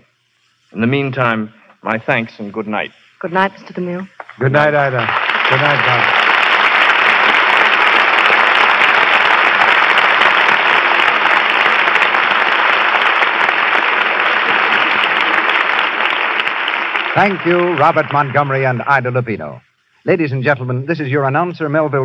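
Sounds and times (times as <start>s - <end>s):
audience applauding: 4.2s - 19.3s.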